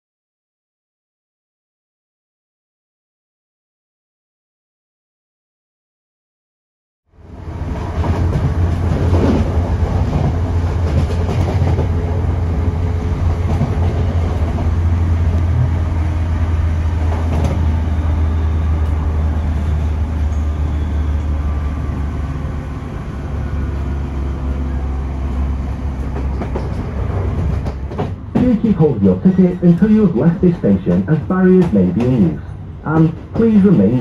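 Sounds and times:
train wheels rumbling on rails: 7.2s - 34.0s.

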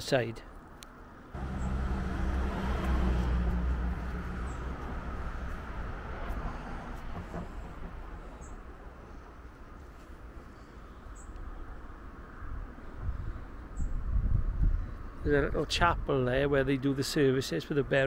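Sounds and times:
vehicle passing by: 1.4s - 8.4s.

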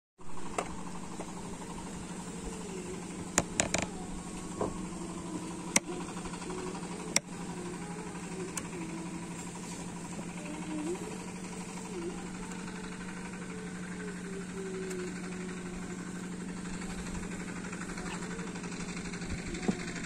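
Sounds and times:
boat engine humming: 0.2s - 20.0s
sharp clicks: 3.3s - 4.0s.

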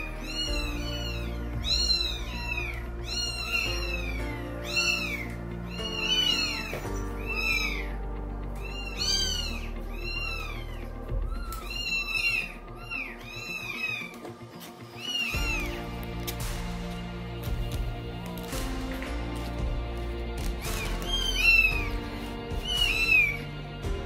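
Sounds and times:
kittens mewing: 0.0s - 16.4s, 20.4s - 23.8s.

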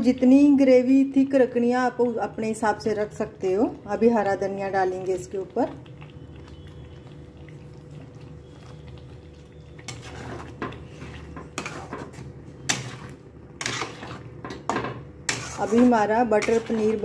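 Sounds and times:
metal spatula scraping a pan: 9.8s - 17.0s.

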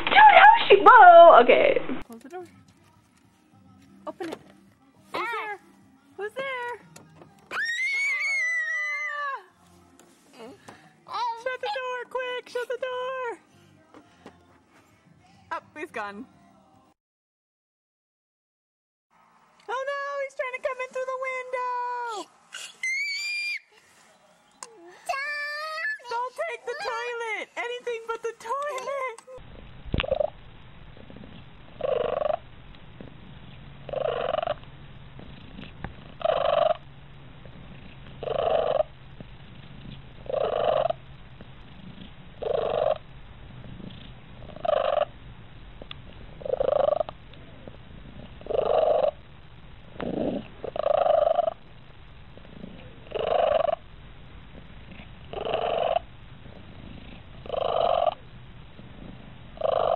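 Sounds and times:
cat purring: 29.4s - 59.9s.

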